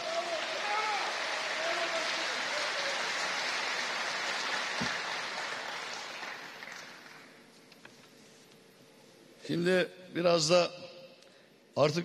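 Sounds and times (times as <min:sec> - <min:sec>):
audience applause: 0:00.0 - 0:07.4.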